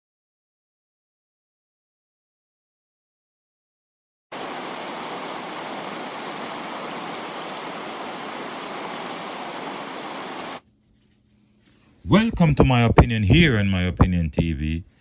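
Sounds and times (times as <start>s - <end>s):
static hiss: 4.4s - 10.6s.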